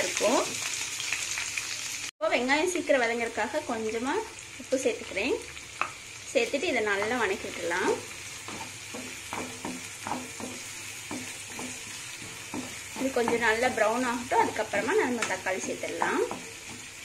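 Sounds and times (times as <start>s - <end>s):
onions sizzling in hot oil: 0.0s - 17.0s
wooden spatula scraping pan: 7.8s - 17.0s.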